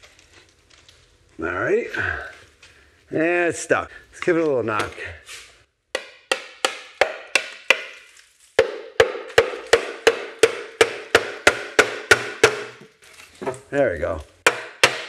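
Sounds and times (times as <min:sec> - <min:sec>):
hammer knocking on metal oil pan: 0:08.6 - 0:12.8.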